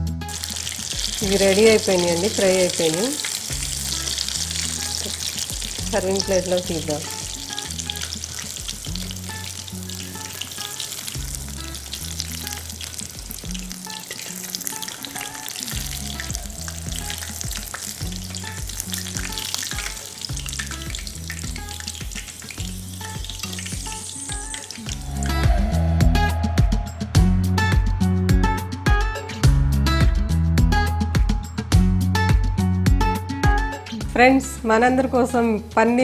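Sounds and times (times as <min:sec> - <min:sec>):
soft background music: 0:00.0 - 0:36.0
hot oil sizzling and crackling: 0:00.3 - 0:25.6.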